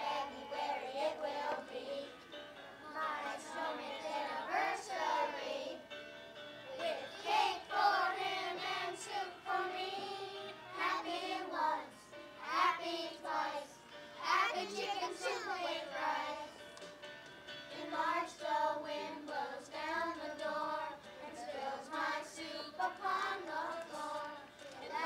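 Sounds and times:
children singing in chorus: 0.0s - 2.0s, 6.8s - 16.5s, 17.8s - 25.0s.

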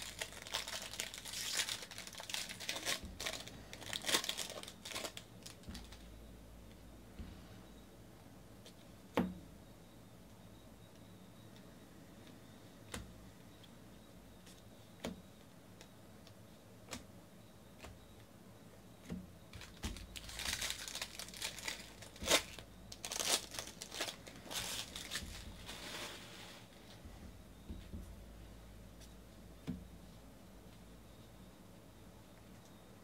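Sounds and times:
foil card pack tearing open: 0.0s - 5.7s, 19.6s - 25.4s.

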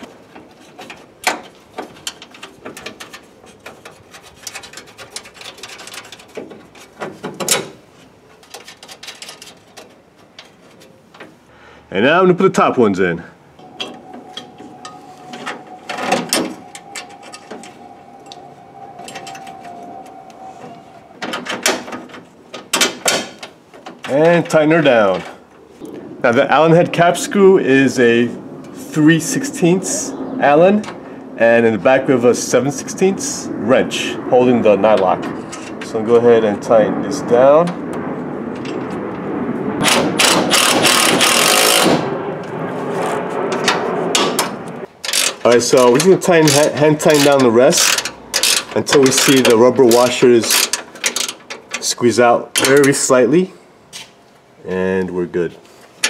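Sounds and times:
faint steady tone: 13.5s - 21.6s
impact driver whirring and hammering: 39.8s - 42.0s.

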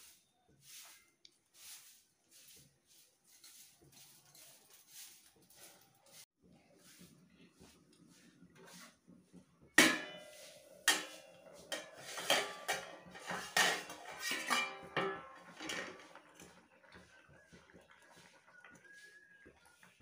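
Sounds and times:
metal cookware clanking: 9.7s - 17.0s.

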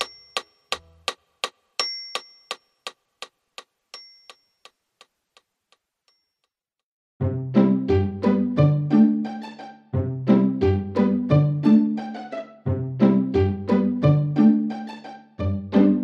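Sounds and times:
high chime dings: 0.0s - 0.7s, 1.8s - 2.8s, 4.0s - 4.8s
clock-like ticking rhythm: 0.0s - 5.5s
background music: 7.2s - 16.0s.

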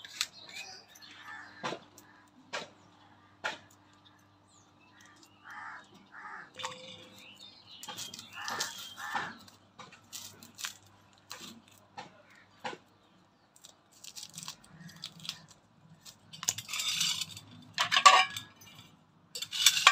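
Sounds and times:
bird chirping: 0.0s - 1.8s, 3.8s - 9.6s
onion peeling crackles: 7.8s - 12.4s, 13.5s - 17.7s
chilli stems snapping: 7.8s - 12.9s, 13.5s - 16.6s.

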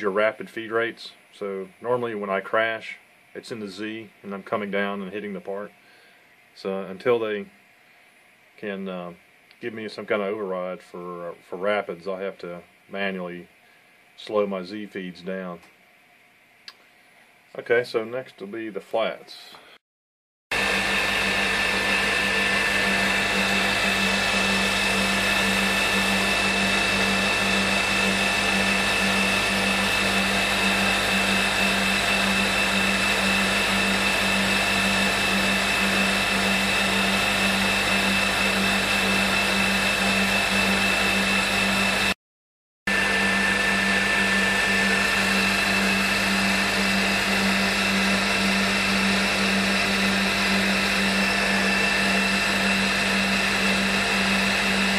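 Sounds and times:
milling machine spindle whine: 20.6s - 42.2s, 42.9s - 54.9s.

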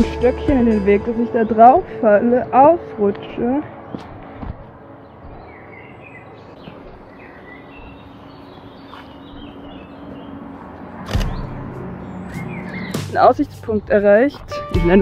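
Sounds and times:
small birds chirping: 3.8s - 15.0s.

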